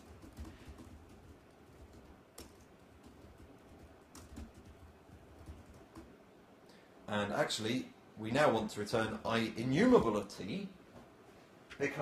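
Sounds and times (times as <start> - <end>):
faint laptop keyboard typing: 0.0 - 6.2.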